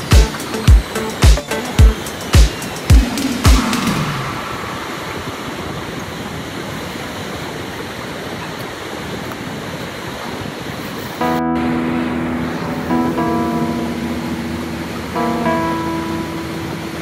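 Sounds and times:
drum beat: 0.1s - 4.0s
water rushing over rocks: 2.4s - 11.2s.

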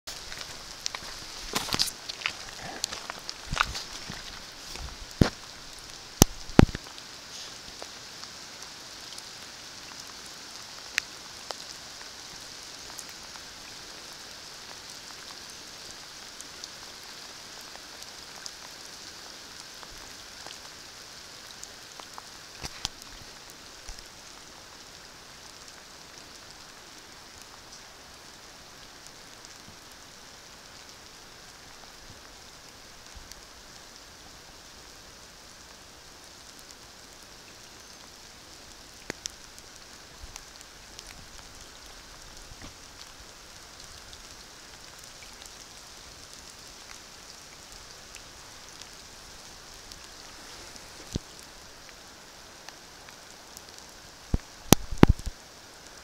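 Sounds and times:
rain falling on foliage: 0.0s - 56.0s
water dripping: 0.1s - 7.0s, 37.4s - 55.4s.

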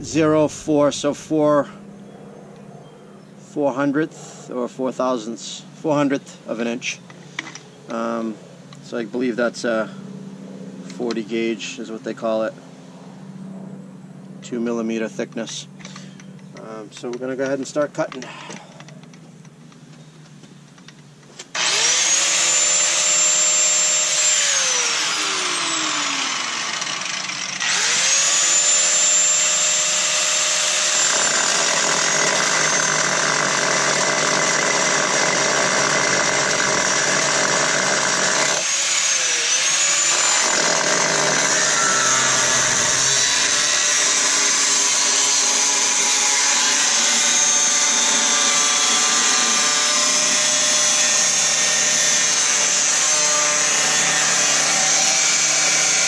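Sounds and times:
angle grinder whining: 21.4s - 56.0s
grinder cutting steel: 21.5s - 56.0s.

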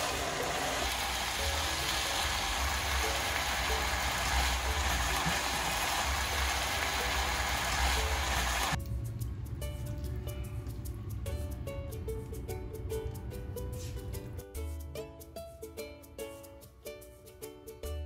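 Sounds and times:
food sizzling in frying pan: 0.0s - 8.8s.

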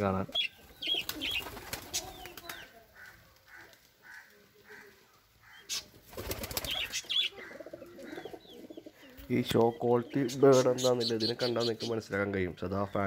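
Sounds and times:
lovebirds chirping: 0.0s - 13.0s
pigeon calls: 0.2s - 12.4s
pigeon wings flapping: 1.0s - 2.7s, 6.0s - 6.9s.

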